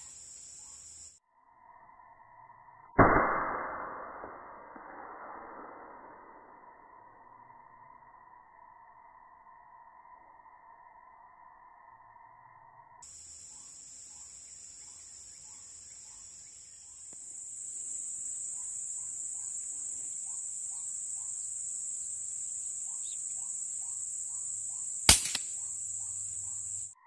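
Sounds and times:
insects buzzing: 0.0 - 1.8, 13.0 - 27.0
air rifle shot: 3.0 - 5.7, 25.1 - 25.7.

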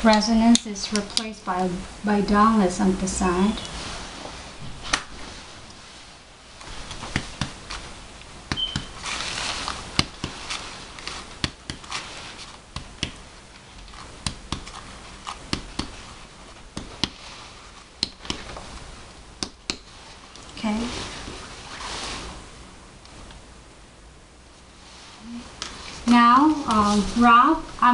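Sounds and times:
finger tapping on chest: 10.0 - 10.4, 11.4 - 11.9, 12.7 - 13.2, 14.2 - 14.8, 15.5 - 16.0, 16.7 - 17.2, 18.0 - 18.6.

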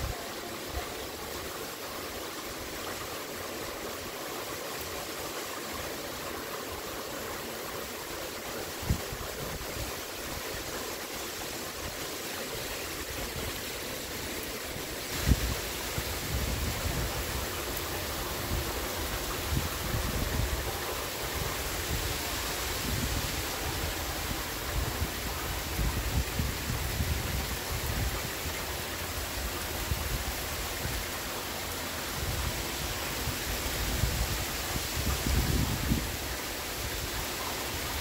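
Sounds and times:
heavy rain: 0.0 - 38.0
wind buffeting microphone: 32.2 - 36.2.

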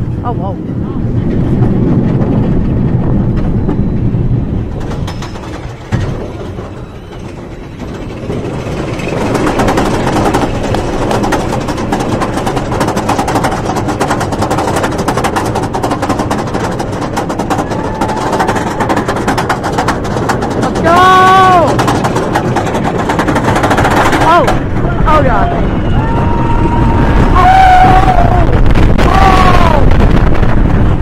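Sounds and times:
roller coaster lift chain running: 0.0 - 31.0
anti-rollback dogs clicking: 1.2 - 25.1.

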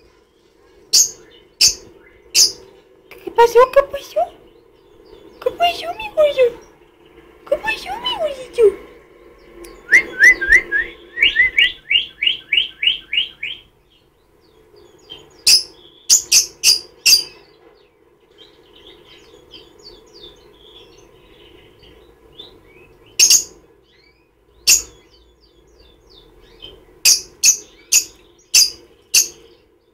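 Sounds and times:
lovebird chirping: 0.8 - 17.5, 18.3 - 29.9
shrill bird notes: 9.7 - 14.1.

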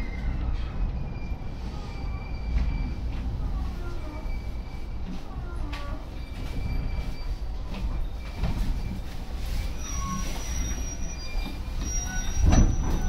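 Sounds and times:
high wheel squeals: 0.0 - 13.0
train running gear rumble: 0.0 - 13.0.

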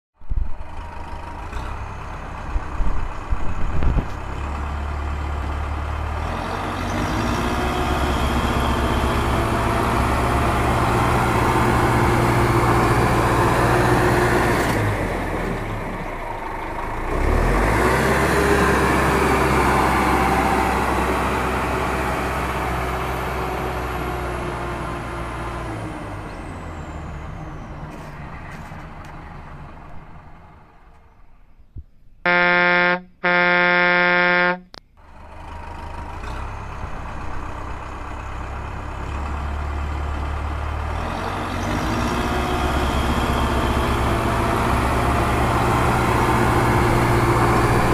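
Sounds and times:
diesel engine throbbing: 32.3 - 47.9.

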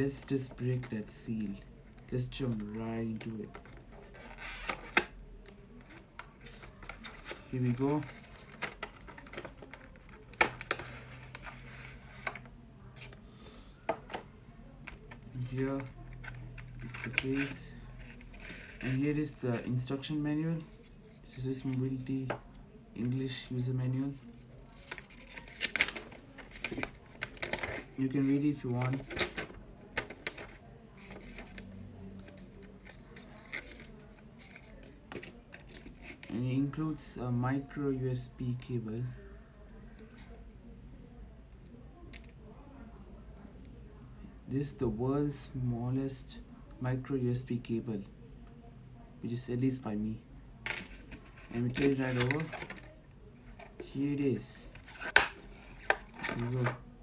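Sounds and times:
paper rustling: 24.2 - 36.4, 50.7 - 52.9
sharp paper crackles: 24.3 - 36.2.

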